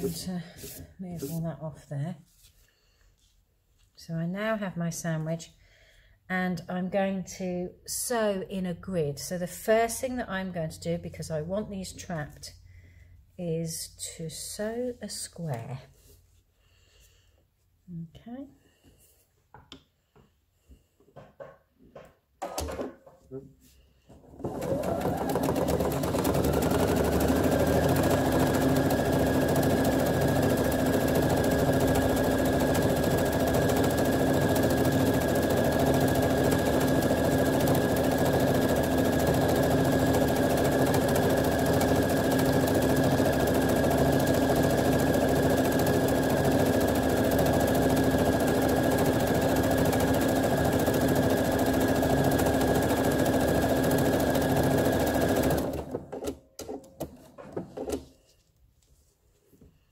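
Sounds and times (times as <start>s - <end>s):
sewing machine running: 0.0s - 0.7s, 24.4s - 56.3s.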